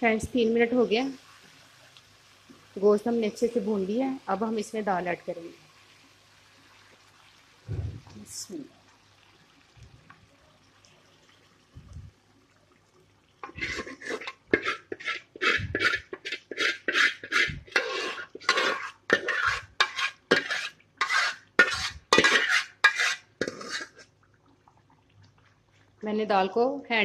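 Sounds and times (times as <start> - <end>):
metal spoon scraping a pot: 13.4 - 24.1.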